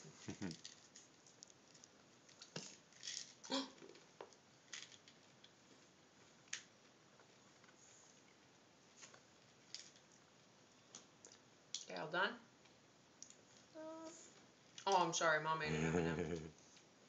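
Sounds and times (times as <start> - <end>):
faint clicks of candies: 12.6 - 15.0.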